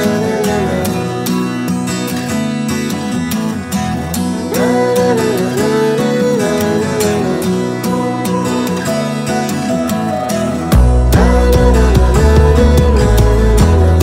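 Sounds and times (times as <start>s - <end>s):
guitar background music: 0.0s - 14.0s.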